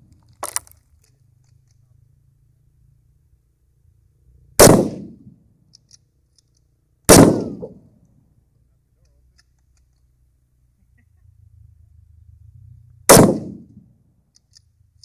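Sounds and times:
rifle shots echoing: 0:04.6 - 0:05.3, 0:07.1 - 0:07.8, 0:13.1 - 0:13.8.

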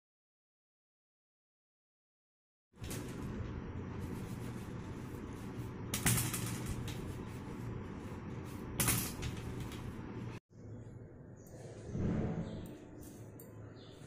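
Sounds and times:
steady low hum: 0:02.8 - 0:14.0.

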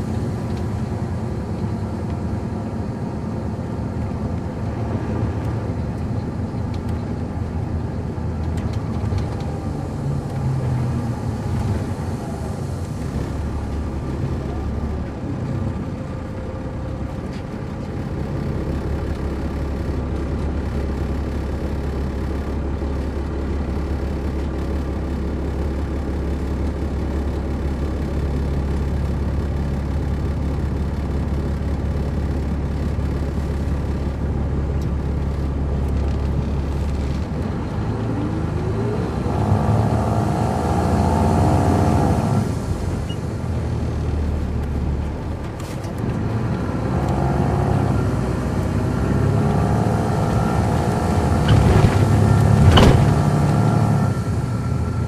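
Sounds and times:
bus diesel engine revving: 0:35.6 - 0:55.0.

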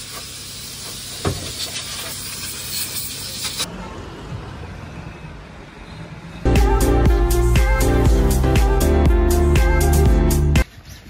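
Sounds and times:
high-pressure water jet hissing: 0:00.0 - 0:03.7.

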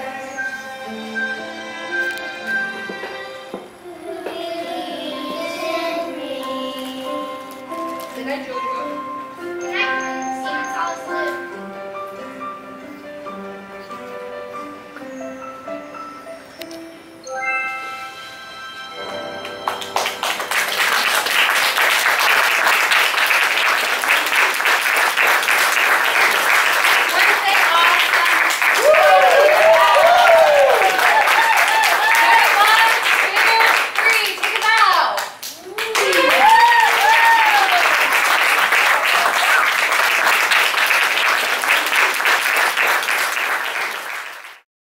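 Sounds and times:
held chord of backing music: 0:00.0 - 0:27.4
audience applause: 0:19.4 - 0:44.6.

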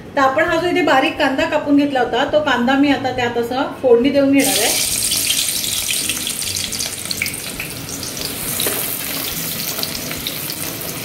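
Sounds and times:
onion sizzling in hot oil: 0:04.4 - 0:11.0.

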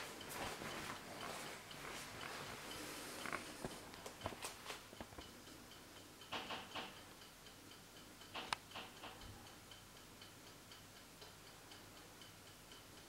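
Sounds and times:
clock ticking: 0:00.0 - 0:13.0
sharp click: 0:08.4 - 0:09.2.

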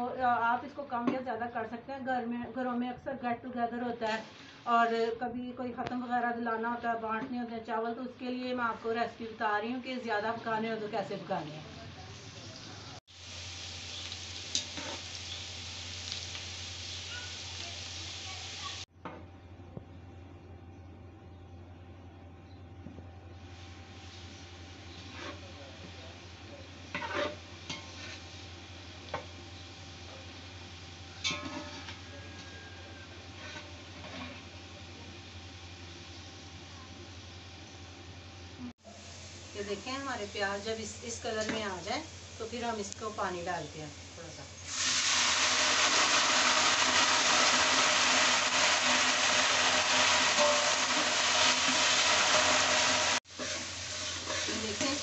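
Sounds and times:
onions sizzling in oil: 0:03.7 - 0:05.2, 0:05.8 - 0:18.9, 0:23.3 - 0:55.0
metal spatula scraping a pot: 0:14.5 - 0:15.0, 0:25.0 - 0:25.5, 0:26.9 - 0:28.4, 0:31.2 - 0:32.0, 0:33.3 - 0:34.6, 0:48.8 - 0:55.0
spatula stirring: 0:26.9 - 0:28.4, 0:53.2 - 0:55.0
water poured into hot oil: 0:44.6 - 0:55.0.

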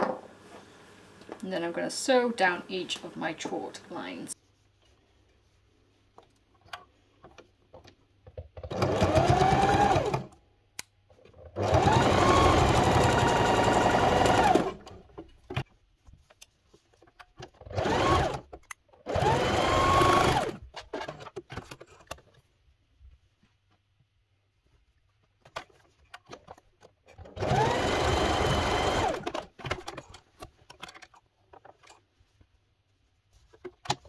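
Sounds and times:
sewing machine whirring: 0:08.6 - 0:10.4, 0:11.3 - 0:15.1, 0:17.5 - 0:21.4, 0:27.1 - 0:30.0.

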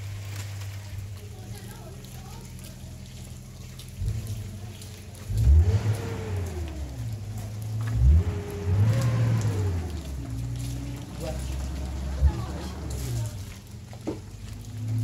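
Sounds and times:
vehicle engine revving: 0:03.3 - 0:15.0.

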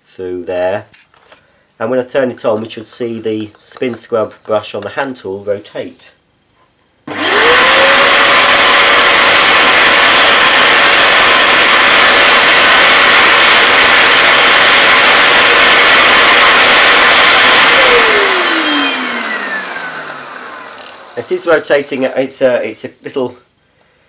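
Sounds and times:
carpet washer motor whining: 0:07.1 - 0:22.1.

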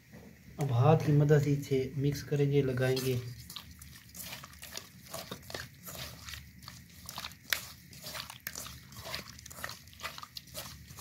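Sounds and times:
wet squishing of fish: 0:02.9 - 0:11.0.

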